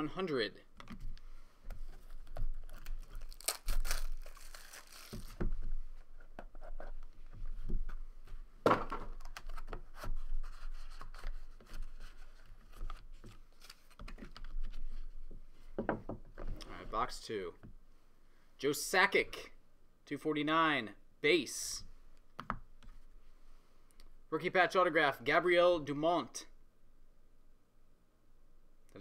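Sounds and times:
wrapper tearing: 2.6 - 5.4.

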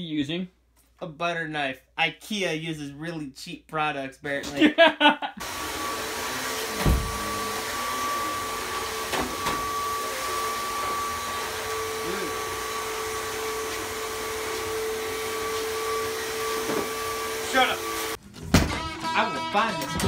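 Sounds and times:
vacuum cleaner motor drone: 5.4 - 18.2
thump: 6.8 - 7.2, 18.5 - 18.8.

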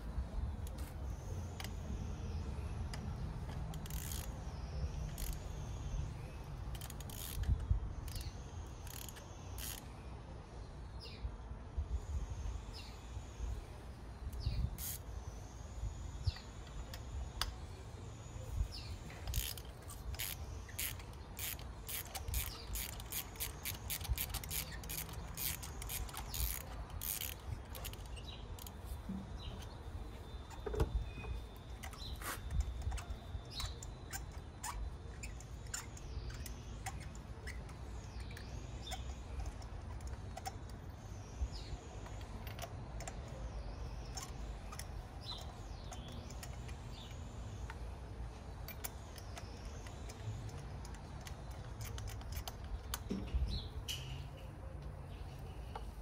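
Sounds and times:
hand ratchet clicking: 2.9 - 5.6, 6.7 - 9.9, 19.2 - 28.8, 48.5 - 53.1.

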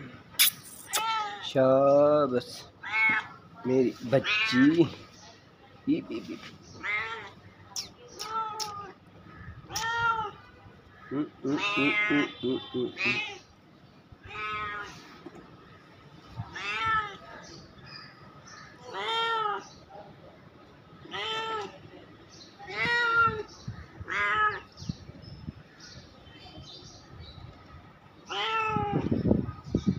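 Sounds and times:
cat meowing: 0.8 - 1.6, 2.8 - 3.4, 8.2 - 10.4, 11.5 - 12.3, 14.2 - 15.0, 16.4 - 17.3, 18.8 - 19.7, 21.0 - 21.8, 22.6 - 24.7, 28.3 - 29.1.

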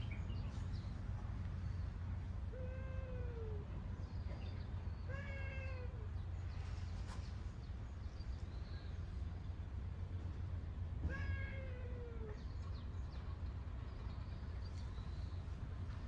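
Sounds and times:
steady low hum: 0.0 - 11.0
cat meowing: 5.1 - 6.0, 11.0 - 12.4.

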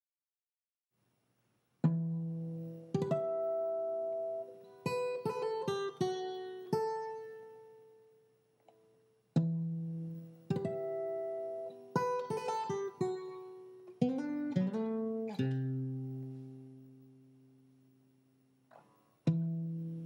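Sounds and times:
acoustic guitar strumming: 1.9 - 7.8, 9.4 - 17.7.

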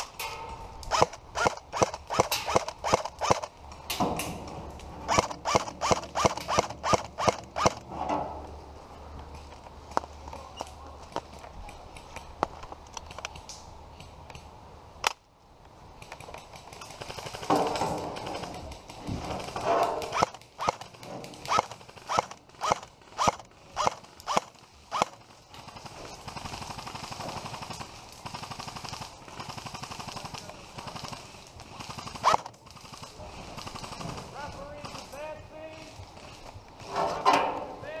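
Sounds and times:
airsoft rifle shots: 0.2 - 4.4, 5.0 - 7.9, 16.7 - 35.4.

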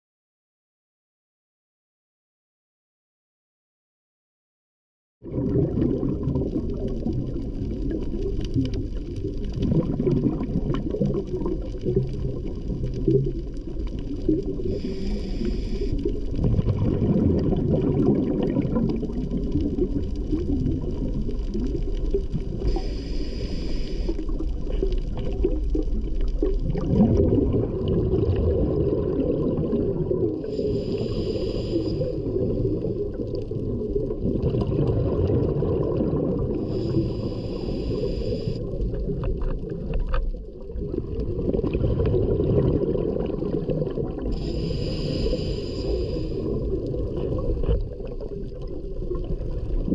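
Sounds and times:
underwater low rumble: 5.2 - 49.9
scuba regulator breathing: 14.6 - 16.4, 22.6 - 25.0, 30.4 - 33.2, 36.6 - 38.9, 44.3 - 46.9.

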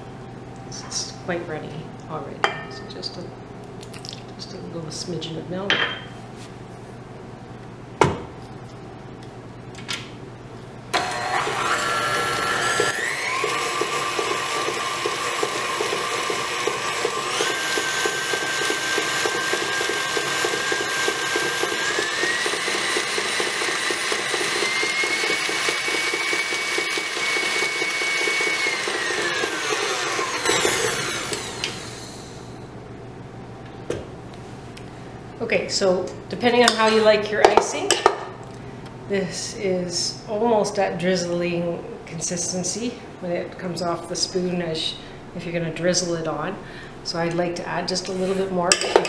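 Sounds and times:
stand mixer motor whining: 11.0 - 32.5.

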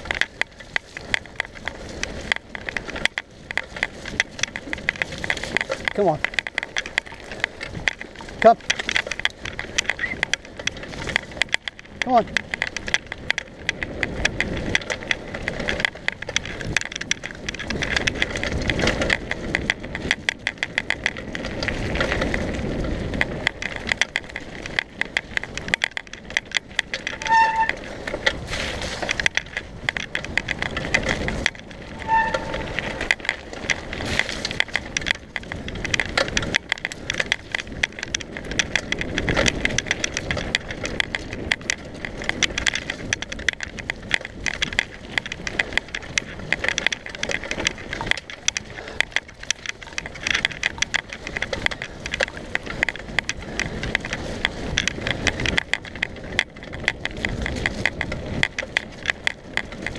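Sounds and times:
bike rattling and clicking: 0.0 - 59.9
bike tyres crunching on gravel: 0.0 - 59.9
low rumbles: 0.0 - 59.9
high squeaks: 27.1 - 28.0, 31.8 - 33.1.

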